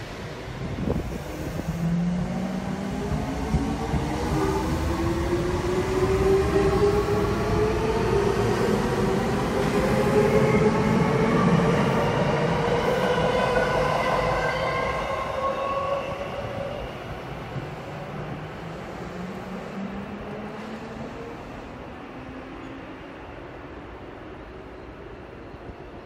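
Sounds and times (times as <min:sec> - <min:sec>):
wheels rumbling on rail: 0:00.0 - 0:15.5.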